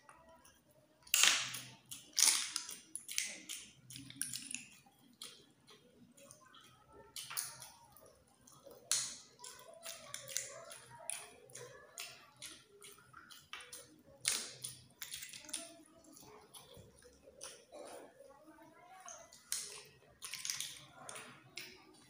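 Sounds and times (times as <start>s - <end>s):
snail shells clicking together: 1.0s - 5.4s, 19.4s - 21.7s.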